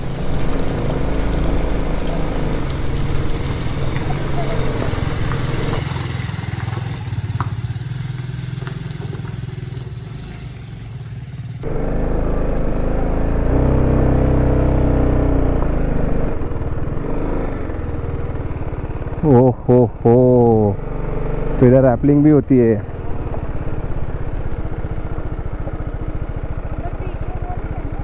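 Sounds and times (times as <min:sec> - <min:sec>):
motorcycle engine revving: 0:00.0 - 0:28.0.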